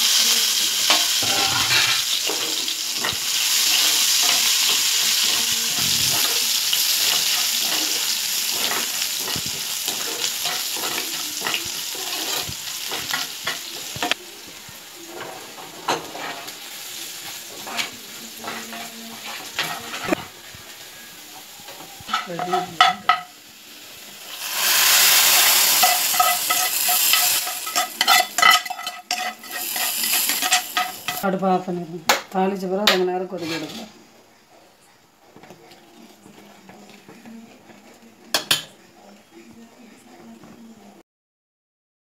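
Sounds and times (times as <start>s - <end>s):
food sizzling in hot oil: 0.0s - 31.5s
spatula clicking and scraping pan: 0.8s - 14.2s, 15.1s - 16.6s, 17.2s - 20.3s, 25.0s - 31.3s.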